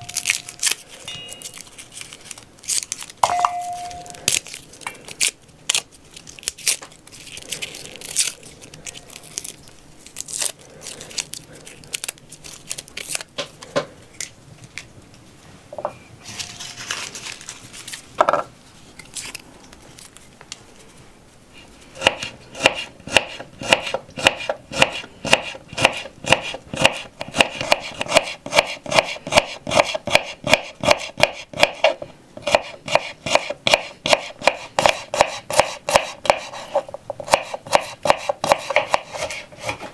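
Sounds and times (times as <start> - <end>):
garlic skins crinkling: 0.0 - 14.9, 16.2 - 18.2, 18.8 - 20.6.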